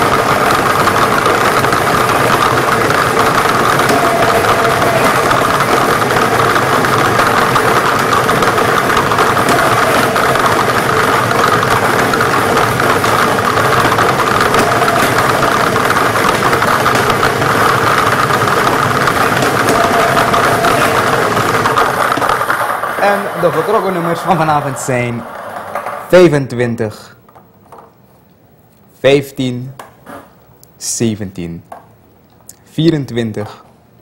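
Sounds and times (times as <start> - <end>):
balls tumbling and clattering: 0.0 - 26.1
machine motor humming: 0.0 - 26.1.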